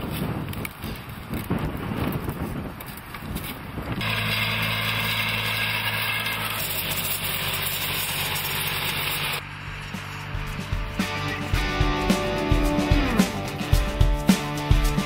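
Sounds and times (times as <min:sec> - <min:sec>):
tractor engine running: 0:03.8 - 0:15.0.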